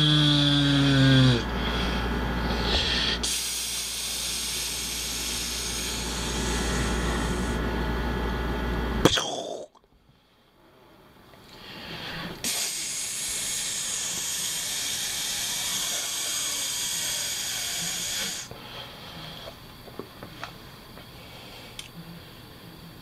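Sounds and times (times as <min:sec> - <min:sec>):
loud pressurised hiss: 0:02.6 - 0:07.6, 0:12.2 - 0:18.5.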